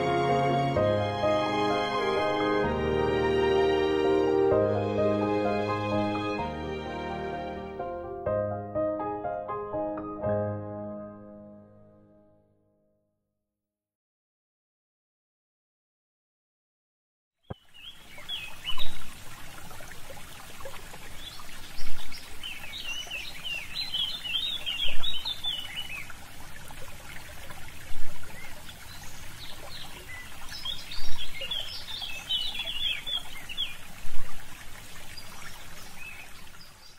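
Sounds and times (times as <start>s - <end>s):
rushing water-like noise: 0.0s - 7.8s, 17.5s - 36.9s
small birds chirping: 17.4s - 19.1s, 21.0s - 26.2s, 28.0s - 34.0s, 35.0s - 36.9s.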